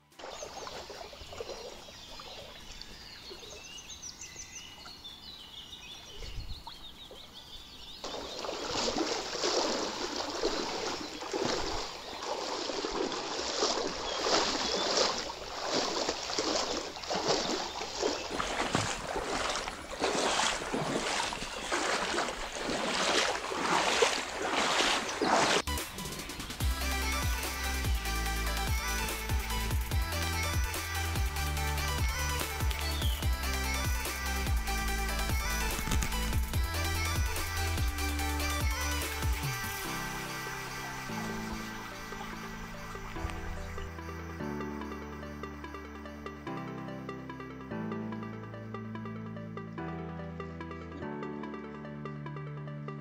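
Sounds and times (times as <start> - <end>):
footsteps splashing in water: 0.2 - 4.0, 6.5 - 25.9, 32.3 - 33.4, 35.3 - 36.6, 40.6 - 44.0
faint chirping: 0.2 - 25.5.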